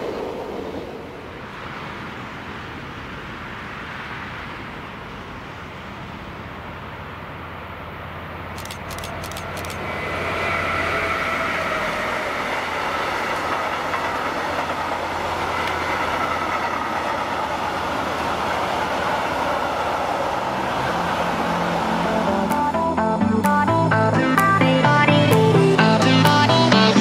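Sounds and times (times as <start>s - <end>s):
electric freight train passing: 0.0s - 27.0s
faint high whine: 0.0s - 27.0s
wheels rumbling on rail: 0.0s - 27.0s
sharp clicks: 8.6s - 9.8s, 22.4s - 22.8s.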